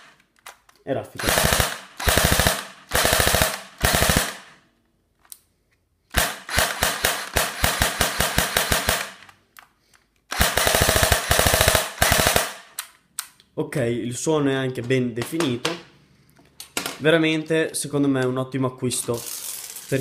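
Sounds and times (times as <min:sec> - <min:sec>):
airsoft gun firing full-auto: 0:01.2 - 0:04.6, 0:06.1 - 0:09.2, 0:10.3 - 0:12.8.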